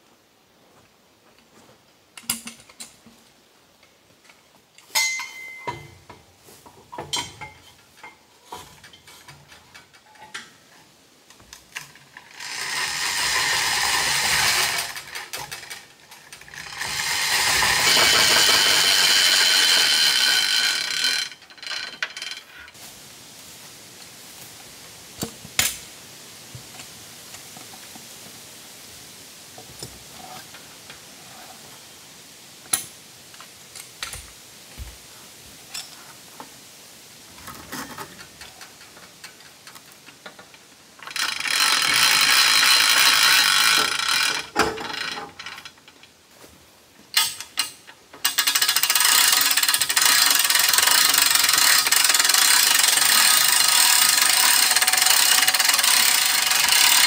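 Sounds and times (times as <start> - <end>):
hand-cranked winch ratcheting: 11.7 - 22.8, 37.5 - 46.1, 47.2 - 57.0.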